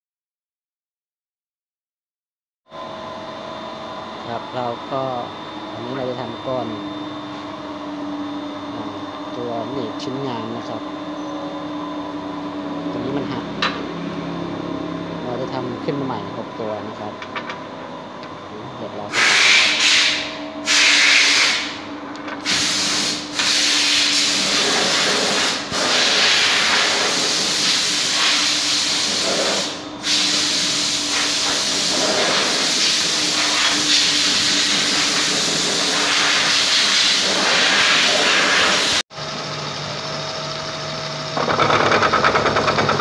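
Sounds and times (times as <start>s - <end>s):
milling machine humming: 2.7s - 43.0s
loud machine-shop hiss: 19.1s - 39.0s.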